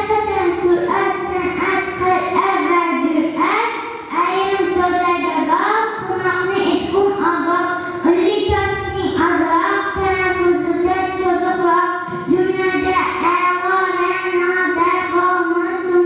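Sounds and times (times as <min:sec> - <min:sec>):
child singing: 0:00.0 - 0:16.0.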